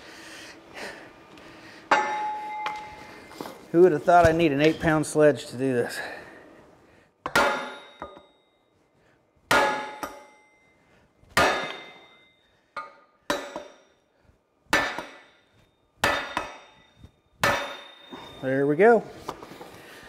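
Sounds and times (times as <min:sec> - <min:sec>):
sledgehammer striking metal: 0:01.9 - 0:03.0, 0:07.3 - 0:08.4, 0:09.5 - 0:10.6, 0:11.4 - 0:14.0, 0:14.7 - 0:18.5.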